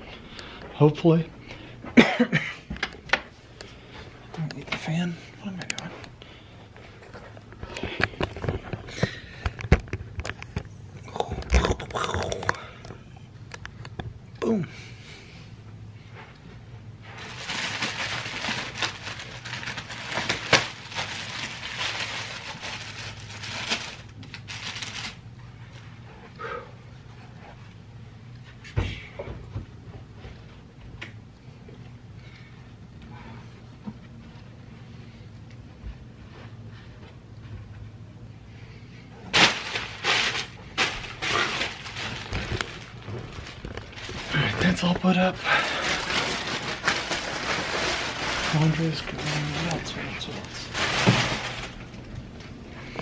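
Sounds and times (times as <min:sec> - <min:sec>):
low steady hum: 0:00.0 - 0:53.0
plastic wrap crinkling and tearing: 0:17.0 - 0:25.9, 0:39.3 - 0:52.1.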